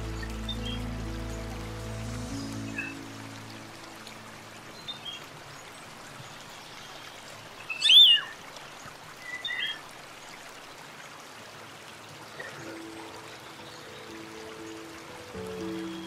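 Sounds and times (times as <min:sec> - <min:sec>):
steady background hiss: 0:11.6 - 0:16.0.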